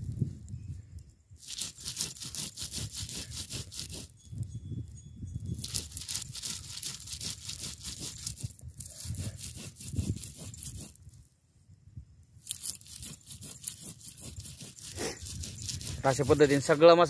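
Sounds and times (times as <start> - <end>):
stone roller scraping on slab: 1.4 - 4.1, 5.6 - 11.2, 12.5 - 17.0.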